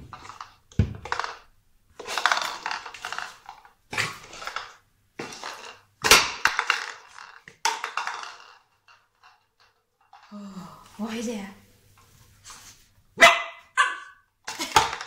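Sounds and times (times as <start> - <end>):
plastic container clattering on tile: 0.0 - 10.4, 14.4 - 15.0.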